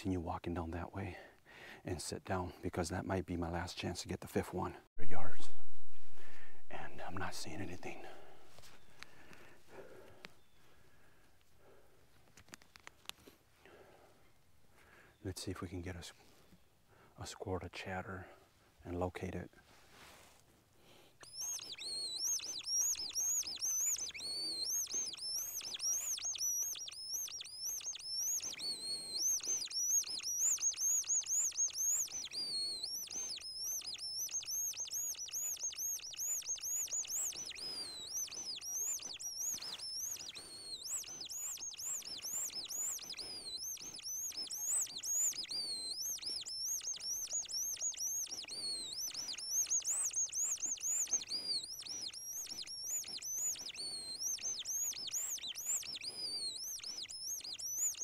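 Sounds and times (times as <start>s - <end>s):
squirrel call squeaky chirps: 21.2s - 58.0s.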